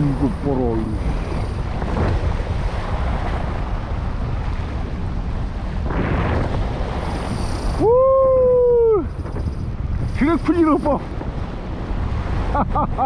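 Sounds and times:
surf washing over rocks: 0.0s - 13.0s
wind buffeting microphone: 0.0s - 13.0s
person exclaiming oh: 7.8s - 9.1s.

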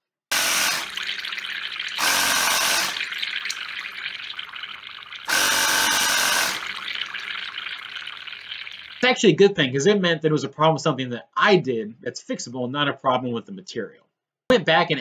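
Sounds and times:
air bubbling through water: 0.3s - 9.1s.

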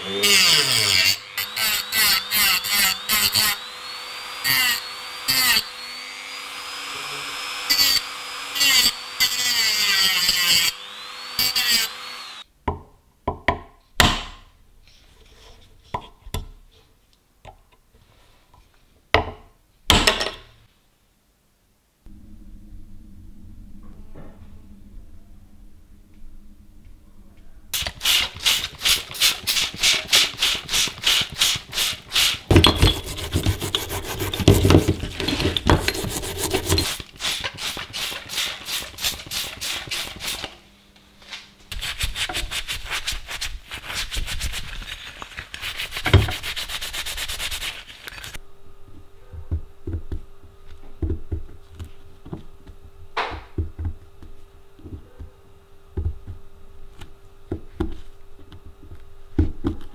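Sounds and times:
steady hum: 21.8s - 31.0s, 45.8s - 59.9s
hand scrubbing rusty metal: 27.8s - 40.1s, 45.6s - 48.0s.

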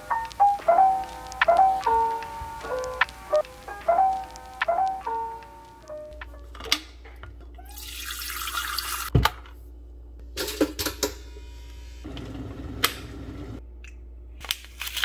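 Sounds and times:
water running into kettle: 7.6s - 9.1s.

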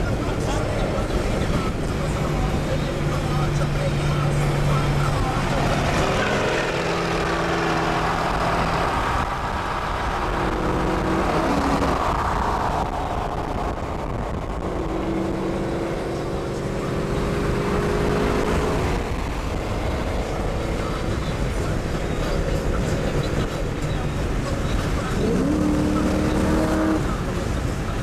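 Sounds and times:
car engine droning: 0.0s - 28.0s
tyre and wind noise: 5.4s - 16.0s.

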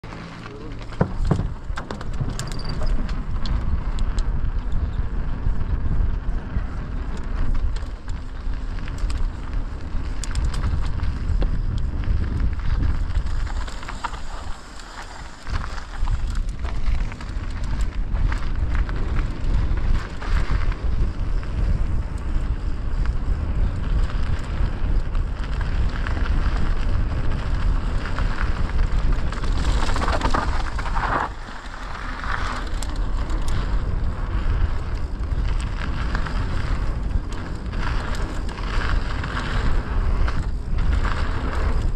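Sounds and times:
bike rattling over bumps: 0.0s - 41.9s
tyres rolling on dirt: 0.0s - 41.9s
wind rumbling on microphone: 0.0s - 41.9s.

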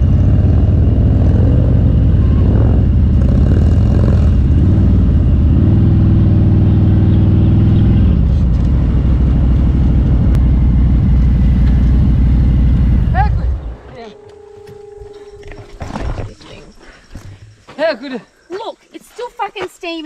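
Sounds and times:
motorcycle engine running: 0.0s - 15.8s.

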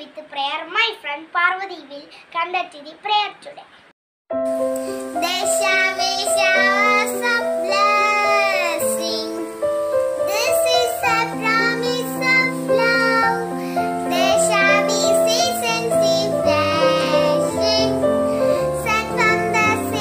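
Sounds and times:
girl singing: 5.1s - 20.0s.

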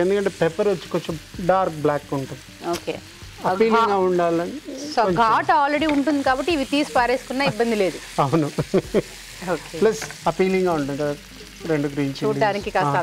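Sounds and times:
onions sizzling in hot oil: 0.0s - 13.0s
person talking: 3.4s - 8.6s.

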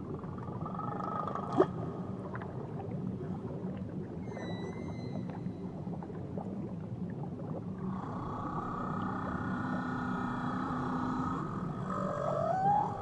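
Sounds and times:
low steady hum: 0.0s - 13.0s
whale call: 4.2s - 5.6s, 7.9s - 13.0s
underwater crackling: 7.4s - 13.0s.

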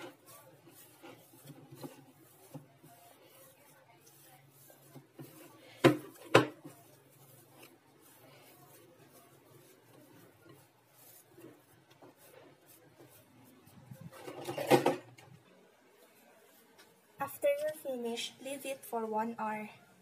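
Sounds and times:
faint dough handling sounds: 0.0s - 20.0s.

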